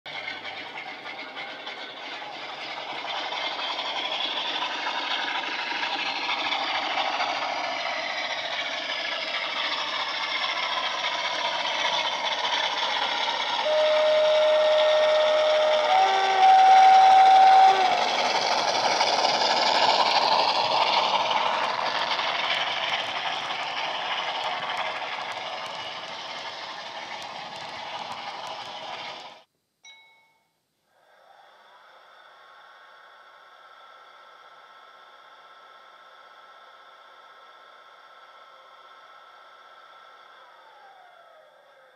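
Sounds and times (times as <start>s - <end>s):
diesel locomotive engine: 0.1s - 29.5s, 30.9s - 41.9s
two-tone locomotive horn: 13.6s - 18.4s.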